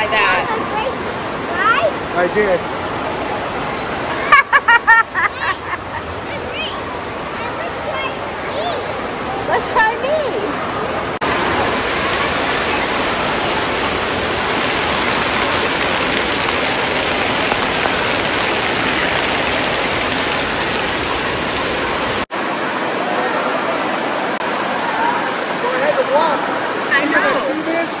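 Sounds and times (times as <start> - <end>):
water spraying onto concrete floor: 11.2 - 22.3.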